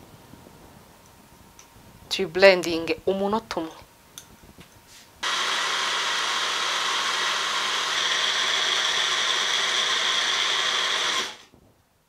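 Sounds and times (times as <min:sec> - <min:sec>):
blender whirring: 0:05.2 - 0:11.4.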